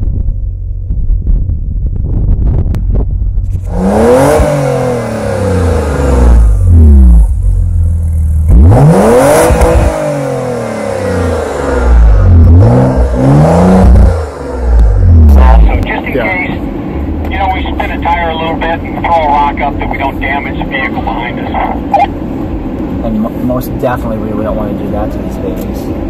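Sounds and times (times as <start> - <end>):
car engine revving: 0.1 - 26.0.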